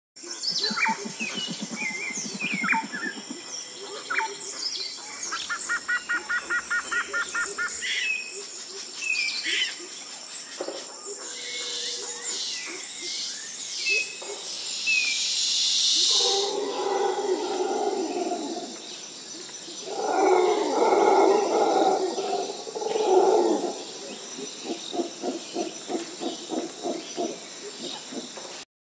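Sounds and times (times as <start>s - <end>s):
birds chirping and calling: 0.2s - 28.6s.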